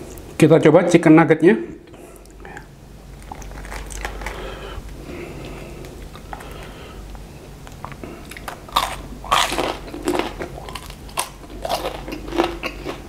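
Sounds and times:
soft breathing: 4.0s - 8.4s.

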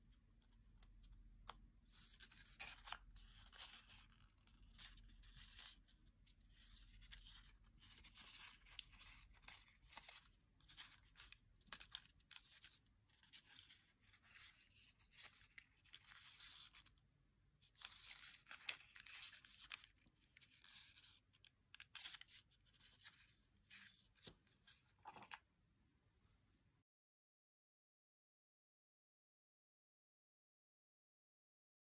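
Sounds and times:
paper crinkling and rustling: 0.3s - 17.0s, 17.6s - 25.4s.

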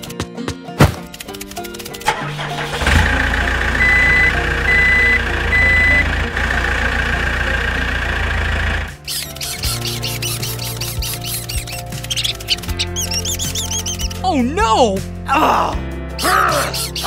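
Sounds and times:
heavy vehicle engine running: 2.1s - 9.0s
reversing beeps: 3.8s - 6.1s.

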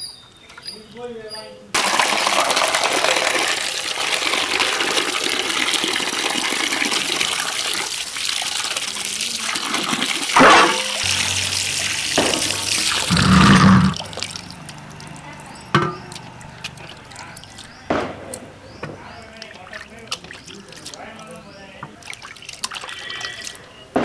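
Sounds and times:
water pouring into steel bowl: 1.8s - 17.7s, 22.0s - 23.7s
water splashing onto steel plate: 1.8s - 18.1s, 19.3s - 23.6s.

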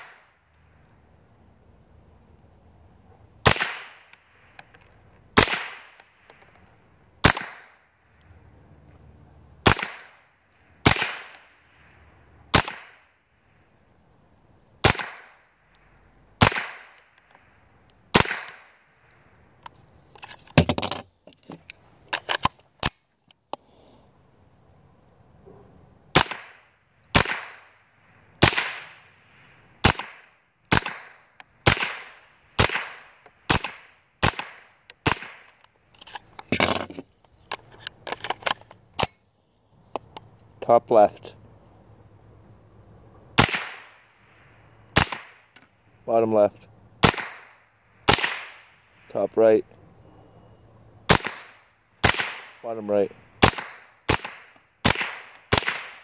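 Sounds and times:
rifle shots: 3.4s - 4.1s, 5.4s - 6.0s, 7.2s - 7.8s, 9.6s - 10.2s, 10.8s - 11.5s, 12.5s - 13.0s, 14.8s - 15.4s, 16.4s - 17.0s, 18.1s - 18.8s, 26.1s - 27.8s, 28.4s - 29.0s, 29.8s - 35.5s, 43.4s - 44.0s, 45.0s - 45.5s, 47.0s - 48.7s, 51.1s - 52.6s, 53.4s - 56.0s.

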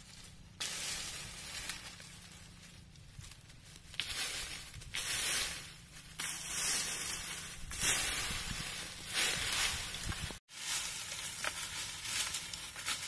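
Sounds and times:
dry leaves and twigs rustling: 0.0s - 13.0s.

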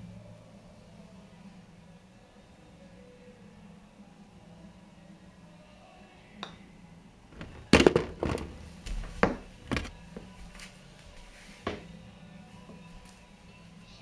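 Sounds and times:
ball clattering into hole: 7.4s - 8.6s, 9.3s - 9.9s
putter tapping golf ball: 7.4s - 8.6s.

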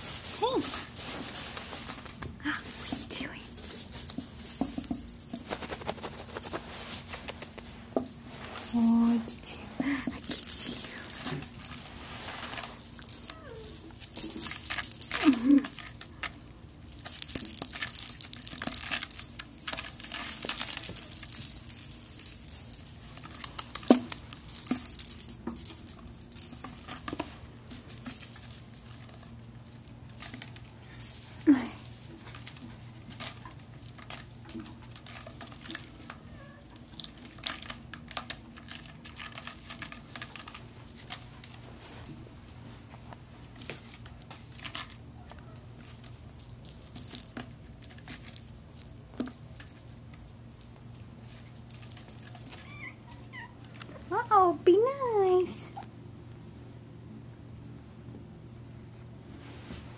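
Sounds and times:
kitten claws scratching: 3.5s - 7.9s.

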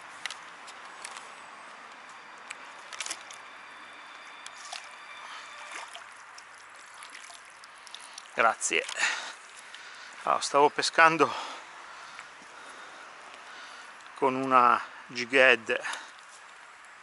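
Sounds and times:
net sloshing through water: 4.5s - 9.6s.

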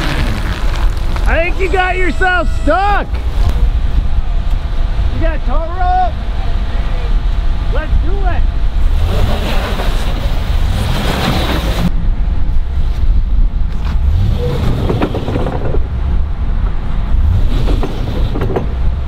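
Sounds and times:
crunching: 0.0s - 2.7s
wind rumbling on microphone: 0.0s - 19.0s.

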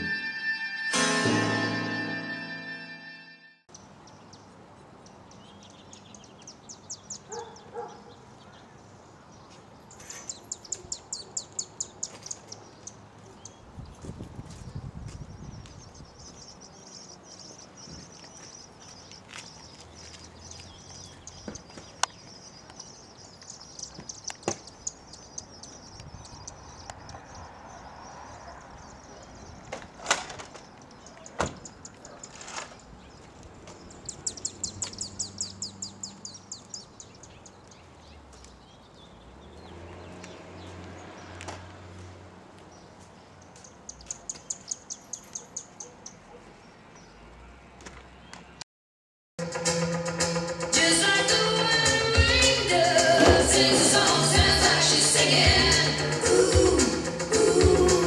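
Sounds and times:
songbirds chirping: 3.7s - 48.6s.

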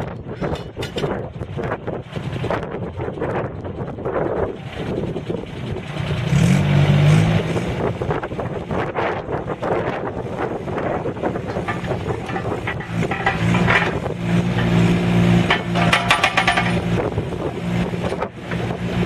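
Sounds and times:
diesel engine running: 0.1s - 19.0s
metal clanks: 0.3s - 1.2s, 11.2s - 17.0s.

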